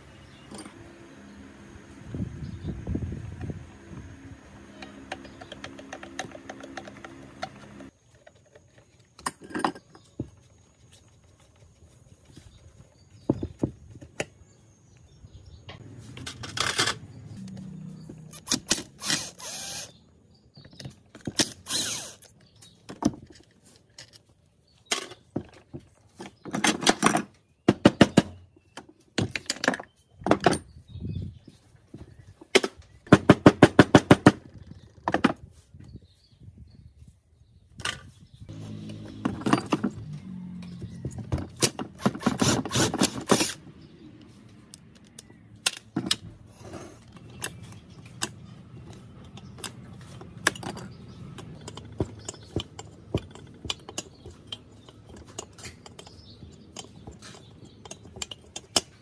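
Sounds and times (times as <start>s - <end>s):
hand tool scraping: 18.1s - 19.9s, 46.5s - 59.0s.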